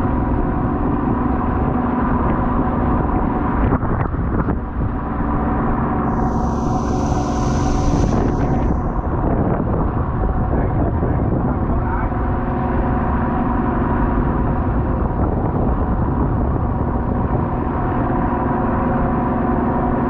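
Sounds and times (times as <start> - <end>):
boat engine humming: 6.0 - 9.2.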